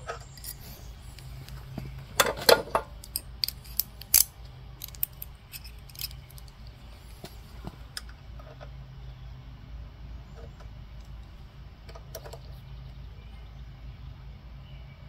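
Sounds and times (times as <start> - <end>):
metal hand tools clinking: 0.2 - 1.3, 2.2 - 6.6.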